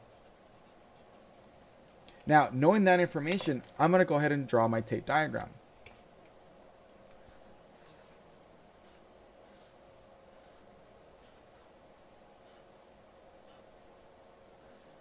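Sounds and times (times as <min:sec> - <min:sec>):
marker scratching on paper: 0:07.2 - 0:08.2, 0:08.8 - 0:09.8, 0:10.4 - 0:11.7, 0:12.4 - 0:12.8, 0:13.4 - 0:13.7.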